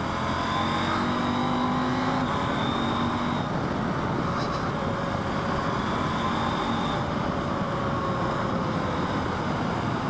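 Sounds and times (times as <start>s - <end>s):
motorcycle engine cruising: 0.0s - 10.0s
riding wind noise: 2.2s - 10.0s.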